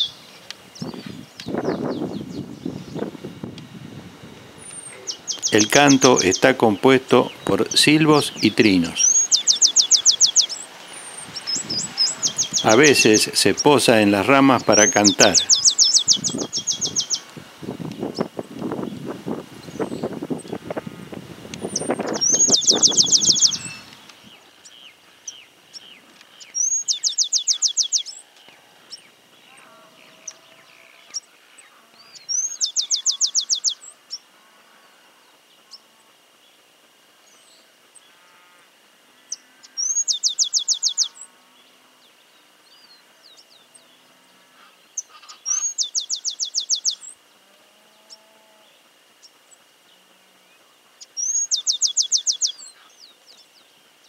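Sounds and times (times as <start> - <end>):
faint calls of other birds: 4.1 - 54.0
sparrow singing high note and trill: 4.5 - 17.2, 21.7 - 24.0, 32.2 - 33.9.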